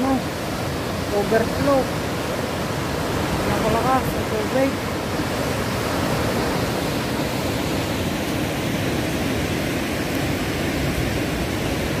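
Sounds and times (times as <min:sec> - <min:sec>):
water rushing over dam spillway: 0:00.0 - 0:12.0.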